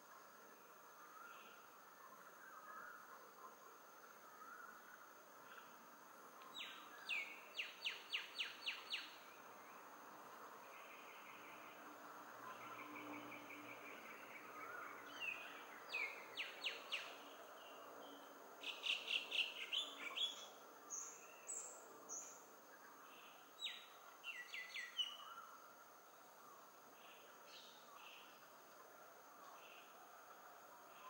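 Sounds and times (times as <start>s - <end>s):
faint hiss: 0.0s - 31.0s
small birds chirping: 6.4s - 9.9s, 10.5s - 31.0s.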